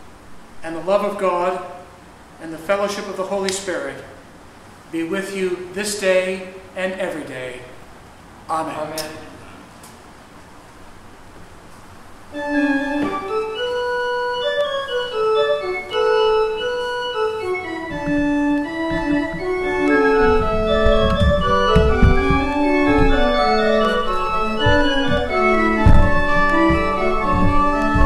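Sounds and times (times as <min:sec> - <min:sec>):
church organ chords: 0:12.3 - 0:28.0
deep bass organ notes: 0:12.3 - 0:28.0.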